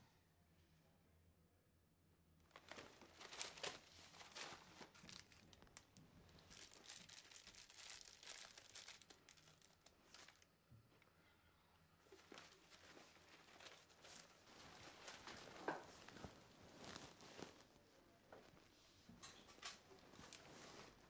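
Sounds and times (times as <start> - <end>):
plastic wrapper crinkling: 2.5 - 10.5, 12.1 - 17.8.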